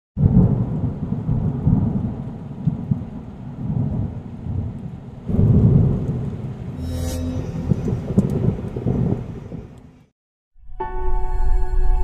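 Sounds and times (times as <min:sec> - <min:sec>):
rain: 0:00.2 - 0:06.8, 0:07.6 - 0:10.1
thunder rumbling: 0:00.2 - 0:10.0.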